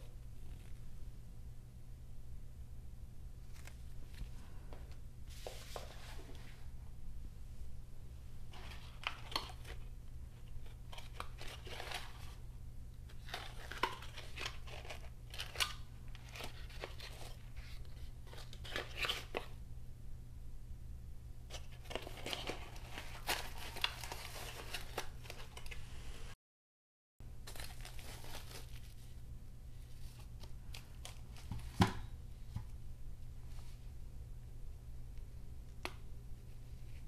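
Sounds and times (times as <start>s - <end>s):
steady low hum: 0.0s - 26.4s, 27.2s - 37.0s
packaging and plastic bag rustling: 13.1s - 19.5s, 21.5s - 25.8s, 27.4s - 29.2s.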